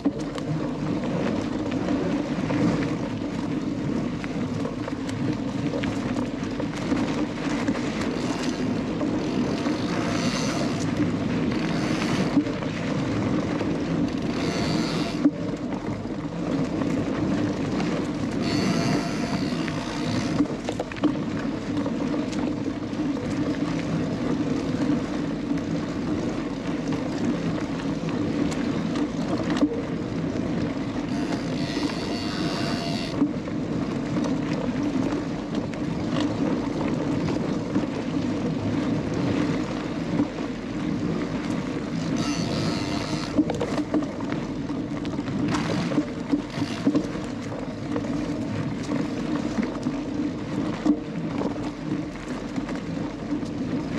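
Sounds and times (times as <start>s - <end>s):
wind noise: 0.0s - 53.9s
high-pitched buzzing: 9.6s - 10.8s, 14.4s - 15.3s, 18.4s - 20.4s, 31.1s - 33.2s, 42.2s - 43.4s, 45.6s - 47.0s.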